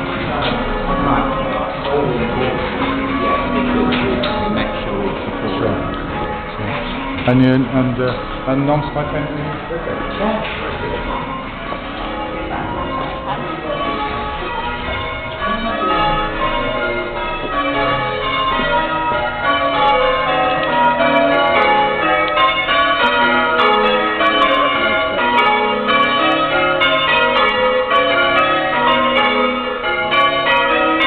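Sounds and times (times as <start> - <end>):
church bells pealing: 0.0 - 31.0.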